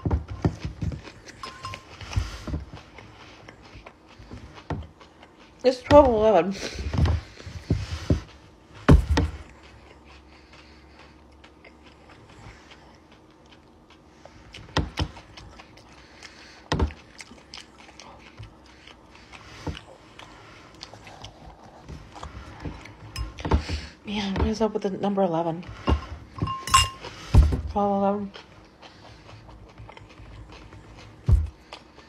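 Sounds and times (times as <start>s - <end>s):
fork tapping glass bowl: 26.4s - 27.0s.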